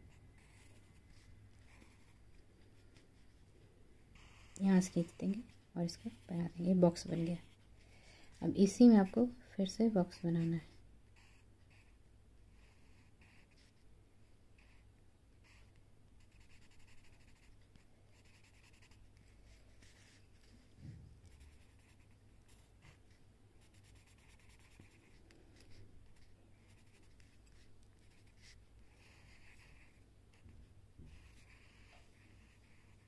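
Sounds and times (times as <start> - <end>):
pencil scratching on paper: 0.4 - 2.3, 4.2 - 13.8, 15.4 - 20.6, 21.2 - 33.0.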